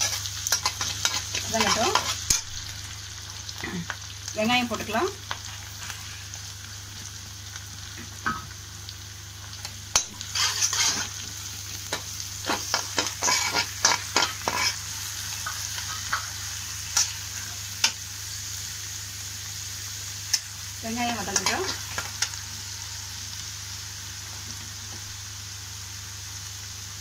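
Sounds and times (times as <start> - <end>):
vegetables sizzling in hot oil: 0.0 - 27.0
metal spatula scraping pan: 10.0 - 11.2, 12.5 - 14.8.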